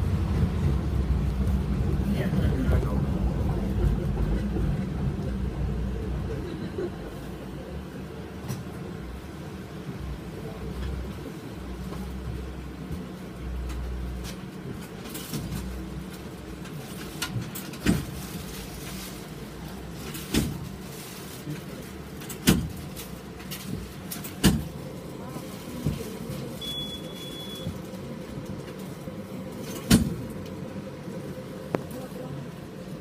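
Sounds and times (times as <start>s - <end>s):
low rumble: 0.0s - 7.9s
tram electrical hum: 0.0s - 33.0s.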